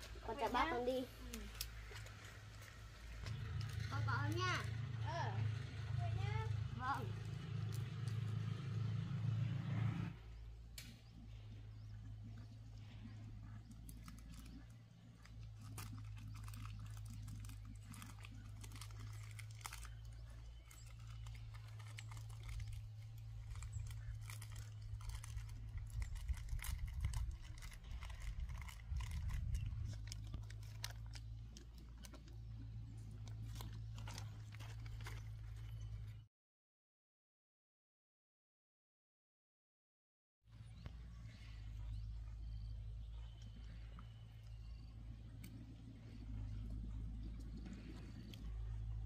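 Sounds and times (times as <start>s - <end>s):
chewing bread: 11.1s - 36.2s, 40.8s - 49.0s
wrapper crackling: 15.3s - 32.2s, 33.2s - 35.7s
steady low hum: 40.5s - 49.0s.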